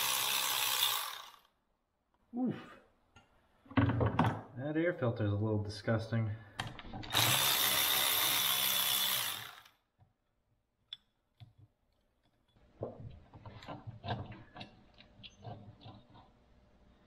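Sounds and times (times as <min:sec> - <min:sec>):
cordless ratchet running: 0:00.0 - 0:01.5, 0:07.1 - 0:09.8.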